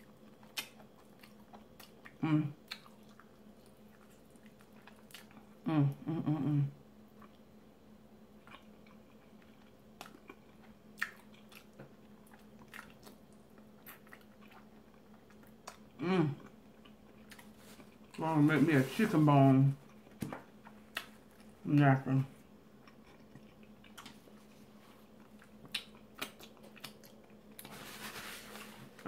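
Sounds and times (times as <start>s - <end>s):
chewing and lip smacking: 0.0s - 5.6s, 7.1s - 7.4s, 8.4s - 18.2s, 22.8s - 24.4s, 25.0s - 27.7s
faint steady hum: 0.0s - 29.0s.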